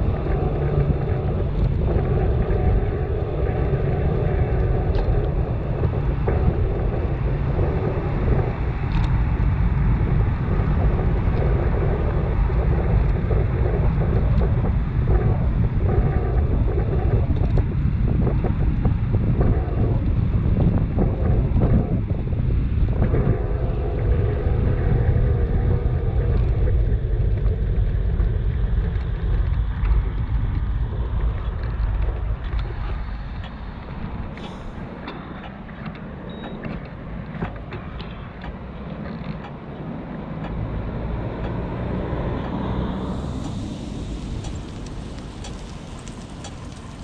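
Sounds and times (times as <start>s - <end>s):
bicycle road noise: 0.0s - 47.0s
wind buffeting microphone: 0.0s - 47.0s
small clicks and rattles: 43.3s - 47.0s.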